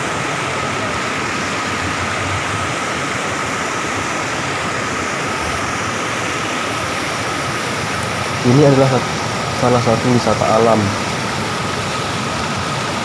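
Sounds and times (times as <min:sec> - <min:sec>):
stream rushing over boulders: 0:00.0 - 0:13.0.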